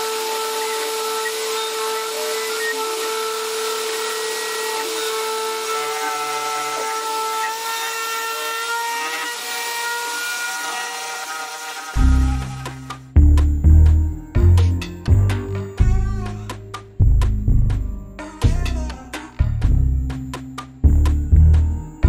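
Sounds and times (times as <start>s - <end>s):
bit carving wood: 0.0s - 13.1s
router spindle whine: 0.0s - 13.1s.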